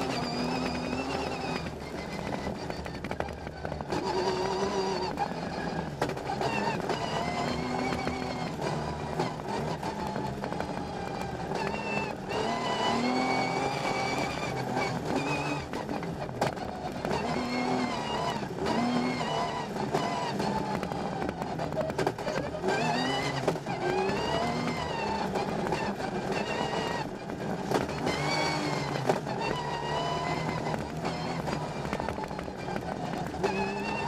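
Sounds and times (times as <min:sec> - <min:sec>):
rally car engine revving: 0:00.0 - 0:34.0
road and tyre noise: 0:00.0 - 0:34.0.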